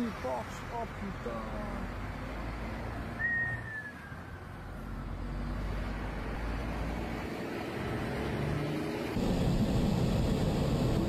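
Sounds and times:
highway traffic rumble: 0.0s - 11.0s
falling whistle-like tone: 3.2s - 4.4s.

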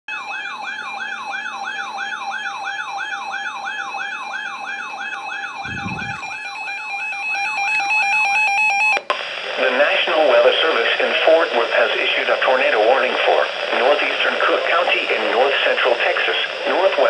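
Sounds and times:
weather alert siren whoop: 0.1s - 9.0s
steady high tone: 5.1s - 6.9s.

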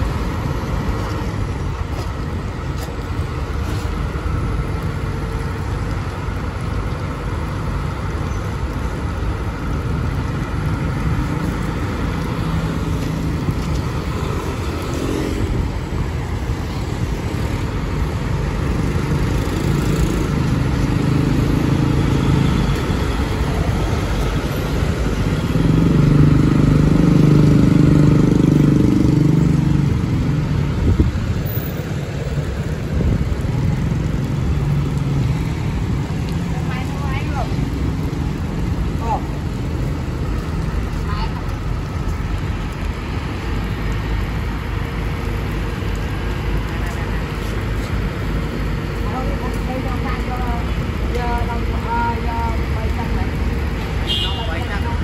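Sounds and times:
heavier engine: 0.0s - 54.0s
passing street traffic: 0.0s - 55.0s
motorcycles passing: 10.3s - 55.0s.

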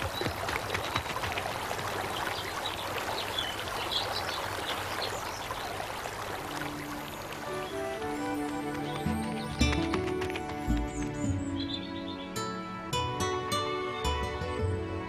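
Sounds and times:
trickling stream: 0.0s - 15.0s
music: 6.5s - 15.0s.

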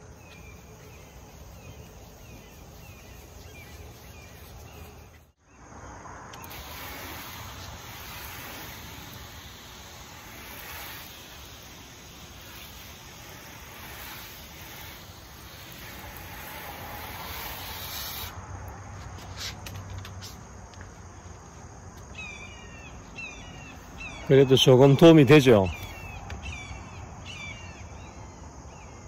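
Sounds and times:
insects chirping: 0.0s - 29.0s
water spraying: 6.3s - 18.4s
sponge rubbing on plastic: 6.5s - 18.3s.

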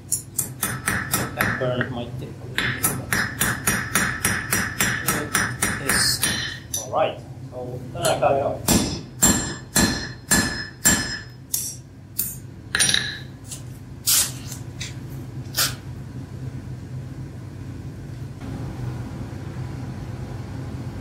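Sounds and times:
hammer striking iron on anvil: 0.1s - 1.9s, 2.6s - 6.9s, 8.0s - 13.3s.

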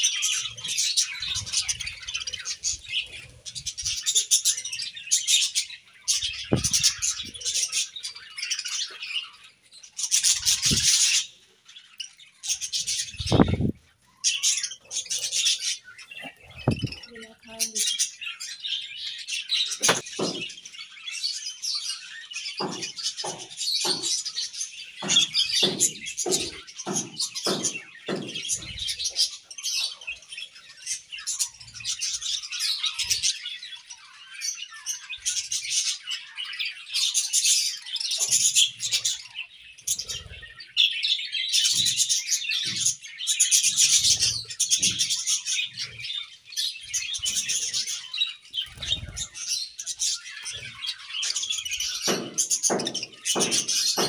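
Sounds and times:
budgerigars chattering and chirping: 0.0s - 54.0s
soft low thumps: 6.5s - 7.0s, 13.2s - 13.8s, 16.6s - 17.0s.

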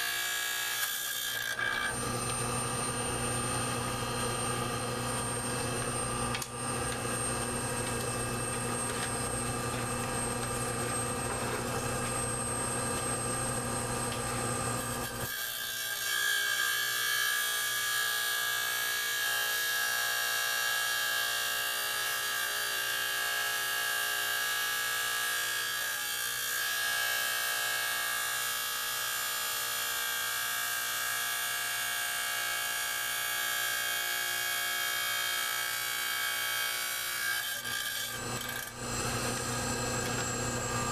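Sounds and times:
motor hum: 1.4s - 15.2s, 37.7s - 40.9s.

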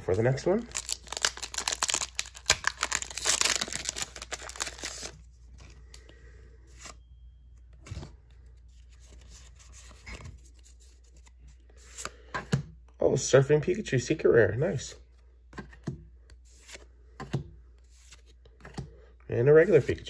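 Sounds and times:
cards rustling and clicking: 0.2s - 6.1s, 15.1s - 19.0s
foil wrapper tearing and crinkling: 0.7s - 5.2s.

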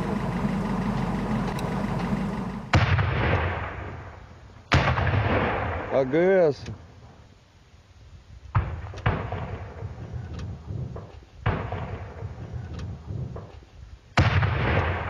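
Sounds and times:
heavy weapons fire: 2.4s - 6.2s, 8.5s - 13.5s, 14.2s - 15.0s.

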